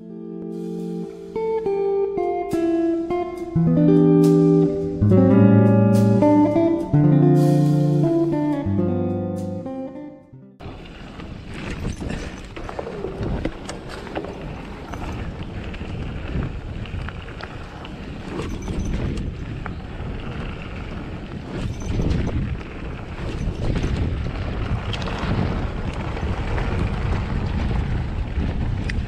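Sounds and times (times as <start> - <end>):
bike rattling and knocking: 10.6 - 29.0
bike tyres on dirt: 10.6 - 29.0
wind rumbling on microphone: 10.6 - 29.0.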